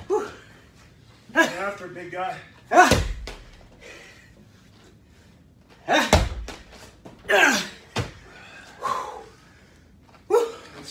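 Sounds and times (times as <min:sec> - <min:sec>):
ball thudding on gym mat: 0:02.8 - 0:03.7, 0:06.0 - 0:07.2, 0:07.9 - 0:08.2.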